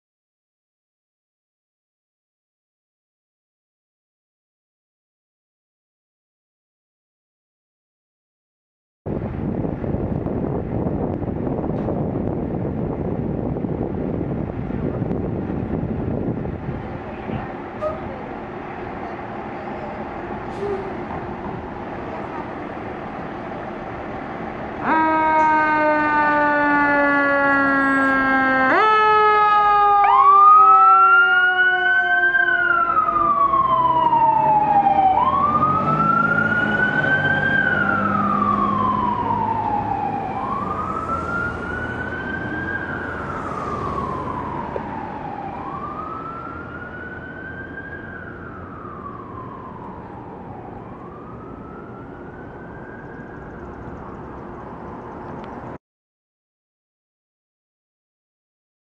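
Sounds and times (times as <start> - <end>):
fire engine air horn: 20.5 - 21.1, 24.8 - 33.6
siren wailing: 24.8 - 55.3.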